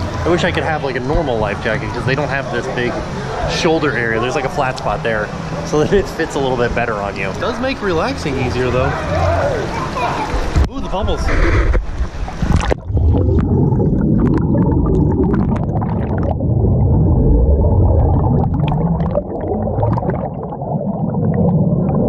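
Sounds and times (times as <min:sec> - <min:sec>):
underwater bubbles churning: 0:08.4 - 0:22.0.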